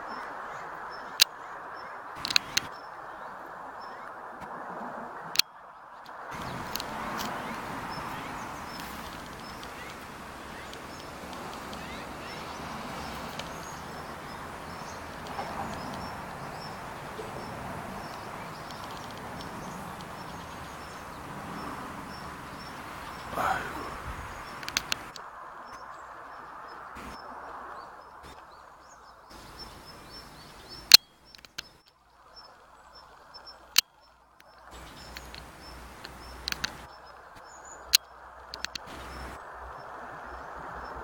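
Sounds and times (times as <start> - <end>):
small birds chirping: 0.0 - 4.2, 5.4 - 41.0
sharp clicks: 2.2 - 2.8, 6.4 - 21.0, 24.4 - 25.2, 30.7 - 32.0, 34.8 - 36.9, 37.8 - 39.3.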